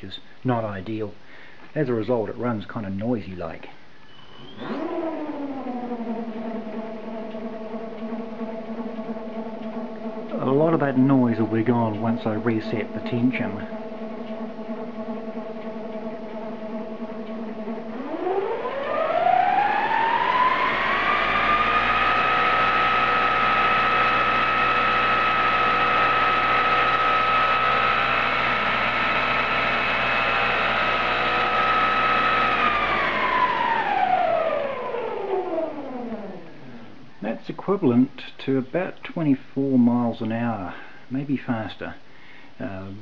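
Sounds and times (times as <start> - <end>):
motor whining: 4.0 - 37.1.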